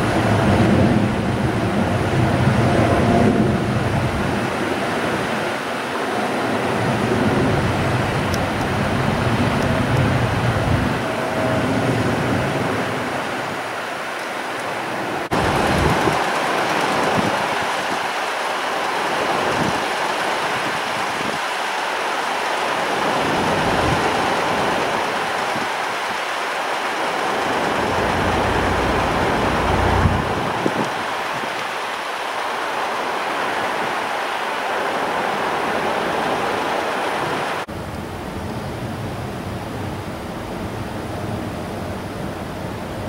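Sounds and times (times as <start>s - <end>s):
strong wind on microphone: 0.0s - 13.8s, 15.2s - 18.2s, 19.0s - 21.5s, 27.1s - 31.9s.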